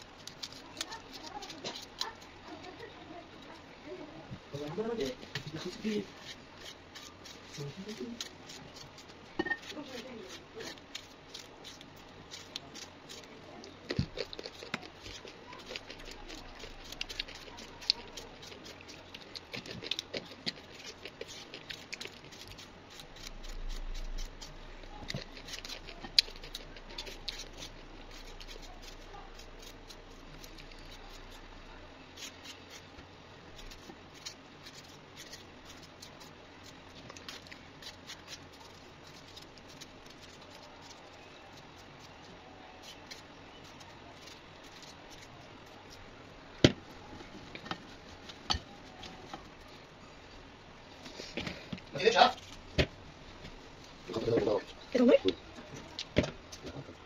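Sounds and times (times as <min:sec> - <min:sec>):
knife cutting vegetables: 0:00.0 - 0:02.3, 0:04.5 - 0:31.4.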